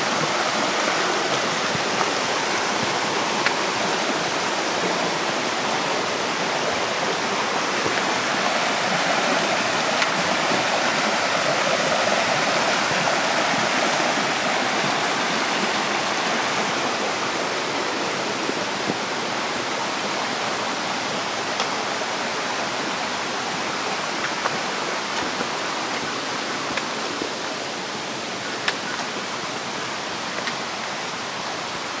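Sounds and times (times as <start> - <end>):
mountain stream rushing: 0.0 - 32.0.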